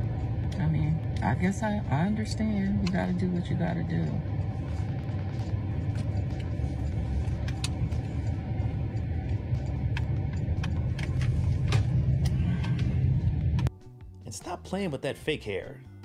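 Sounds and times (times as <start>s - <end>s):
car cabin road and engine rumble: 0.0s - 13.7s.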